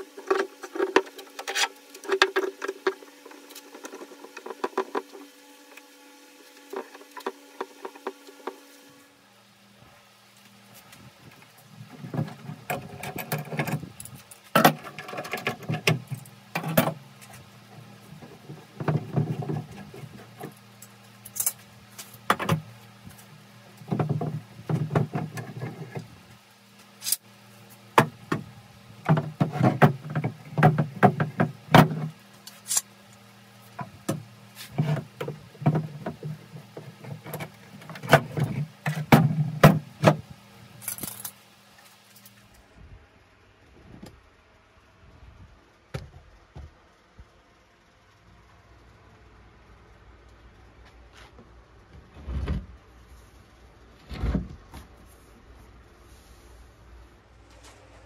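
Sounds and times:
tools and wood clattering: 0:00.0 - 0:05.3, 0:11.7 - 0:26.2, 0:27.8 - 0:32.9, 0:33.7 - 0:41.4
low steady hum: 0:00.0 - 0:58.0.

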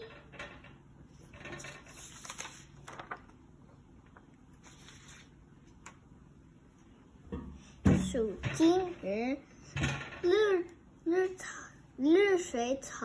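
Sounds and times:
low room hum: 0:00.0 - 0:13.0
paper rustling: 0:01.6 - 0:06.0.

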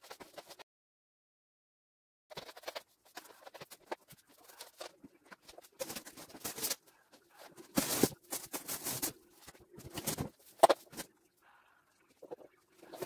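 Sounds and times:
plastic tree needles rustling: 0:02.7 - 0:11.1.

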